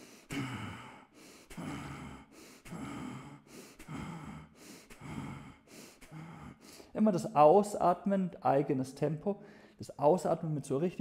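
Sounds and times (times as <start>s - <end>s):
man exhaling forcefully: 0.0s - 6.9s.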